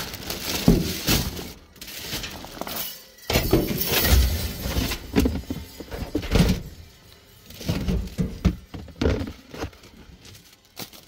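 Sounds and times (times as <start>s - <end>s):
plastic bags rustling: 0.0s - 11.0s
items knocking in bin: 0.1s - 6.8s, 7.6s - 9.7s.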